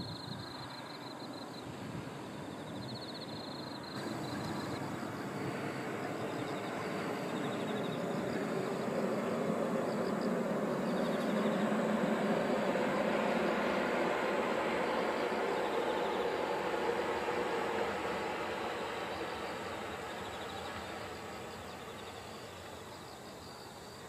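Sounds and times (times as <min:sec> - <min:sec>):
high-speed train rushing: 0:00.0 - 0:24.0
insects chirping: 0:00.0 - 0:24.0.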